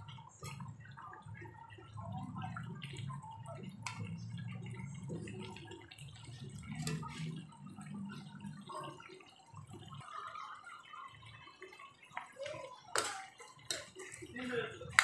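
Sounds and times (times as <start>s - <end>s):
liquid bubbling in a wok: 0.0s - 15.0s
spoon clicking against pan: 12.9s - 14.0s.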